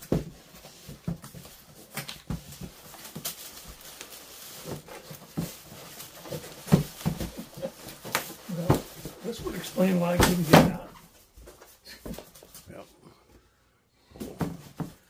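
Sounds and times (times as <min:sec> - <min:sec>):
cardboard box being handled: 0:00.0 - 0:10.9.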